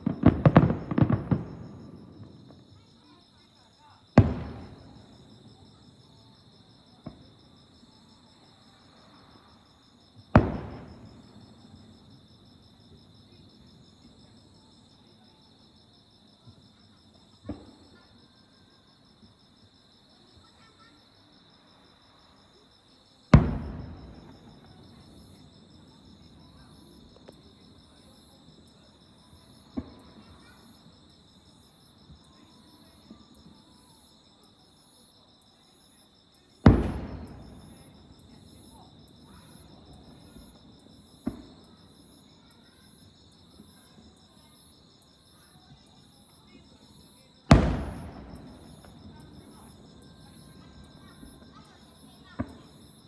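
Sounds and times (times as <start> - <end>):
firework shells booming: 0.0 - 2.5, 4.2 - 5.2, 10.4 - 11.6, 23.3 - 25.4, 36.6 - 38.1, 47.5 - 49.4
sharp firework reports: 47.5 - 48.9.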